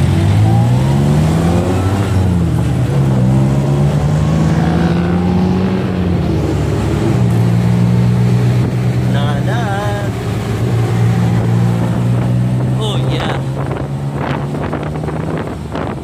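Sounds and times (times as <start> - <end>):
road and wind noise: 0.0 - 16.0
tuk-tuk engine running: 0.0 - 16.0.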